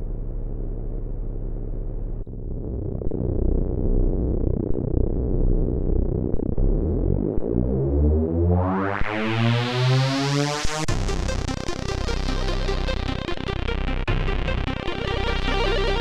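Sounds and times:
chiptune music: 14.4s - 16.0s.

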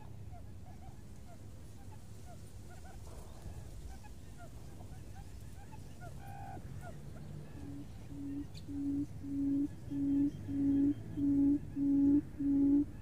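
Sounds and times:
low hooting bird call: 3.4s - 13.0s.

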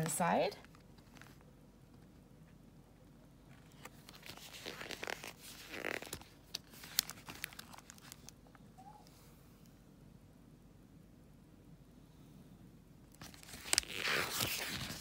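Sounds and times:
paper rustling and crinkling: 0.6s - 1.4s, 3.4s - 8.4s, 13.2s - 15.0s.

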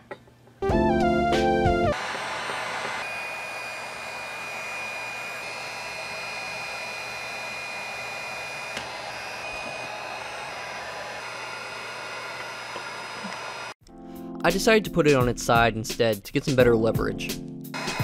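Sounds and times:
heat gun blowing air: 1.9s - 13.8s, 17.8s - 18.0s.

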